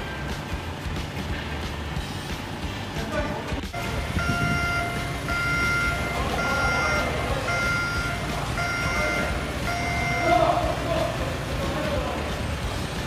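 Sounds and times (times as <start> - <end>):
low machinery rumble: 3.7 - 13.0
electronic warning beeps: 3.8 - 11.6.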